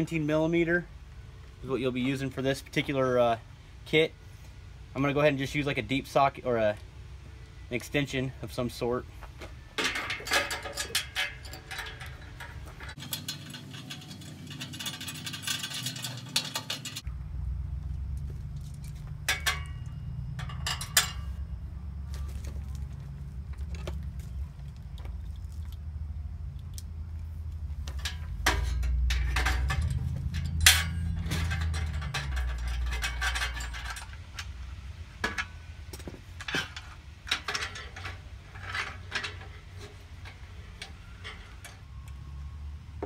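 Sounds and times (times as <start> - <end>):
metal clinks and rattles: 9.8 - 17.1, 18.2 - 24.0, 27.8 - 41.9
low rumble: 17.0 - 35.9.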